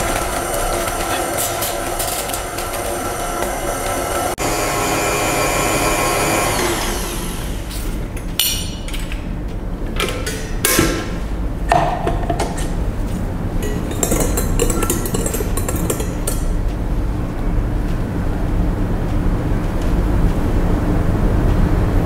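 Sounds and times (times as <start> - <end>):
stand mixer motor whine: 0.0 - 7.7
spoon clinking on glass bowl: 13.6 - 16.5.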